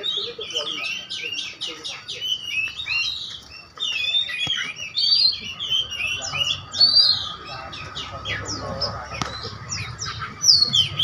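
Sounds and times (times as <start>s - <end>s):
songbirds chirping and warbling: 0.0s - 11.0s.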